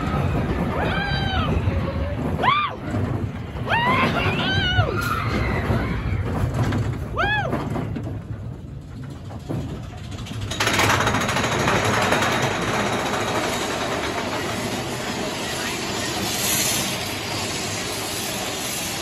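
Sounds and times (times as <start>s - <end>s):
roller coaster rumbling on track: 0.0s - 19.0s
loud steady hiss: 14.5s - 19.0s.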